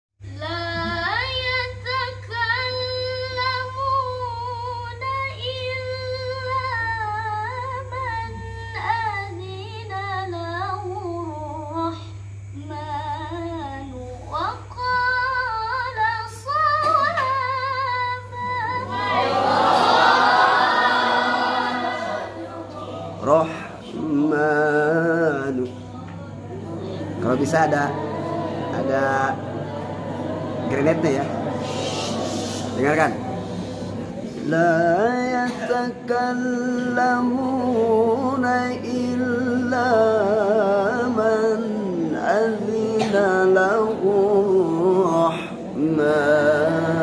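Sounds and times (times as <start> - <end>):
low electrical hum: 0.2 - 47.0
woman reciting melodically: 0.2 - 47.0
group of voices reciting: 11.9 - 47.0.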